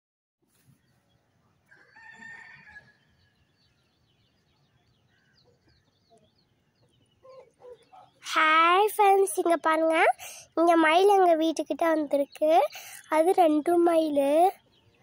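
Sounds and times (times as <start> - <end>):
fowl giving long drawn-out call: 1.7 - 3.1.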